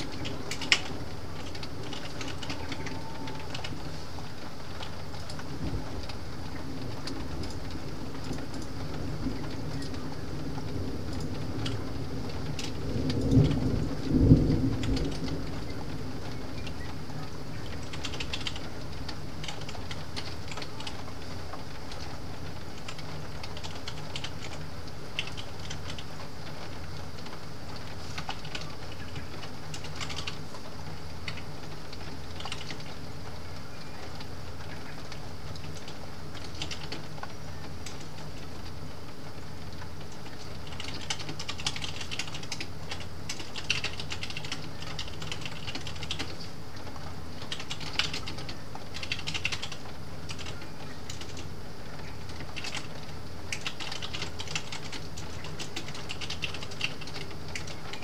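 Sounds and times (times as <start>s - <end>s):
computer keyboard typing: 0.0s - 3.9s, 17.6s - 18.7s, 19.4s - 21.0s, 22.8s - 26.1s, 28.1s - 30.5s, 31.2s - 32.9s, 35.6s - 37.1s, 40.2s - 46.4s, 47.4s - 51.5s, 52.3s - 58.0s
low background noise: 0.0s - 58.0s.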